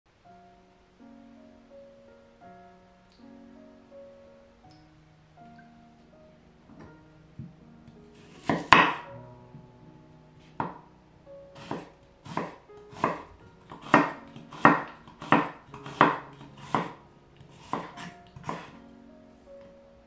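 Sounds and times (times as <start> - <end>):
knife slicing onion on board: 8.2 - 9.0, 11.6 - 18.8.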